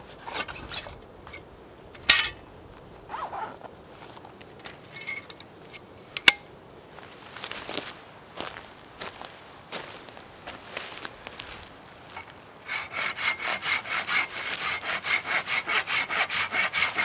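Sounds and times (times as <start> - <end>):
zipper-like rasp: 3.1 - 3.6.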